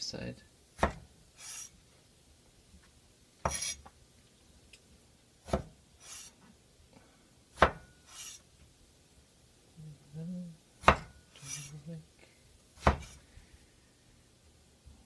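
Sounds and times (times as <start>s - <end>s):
knife chopping on wooden board: 0.8s - 1.1s, 5.4s - 6.2s, 7.6s - 7.9s, 10.8s - 11.6s, 12.8s - 13.2s.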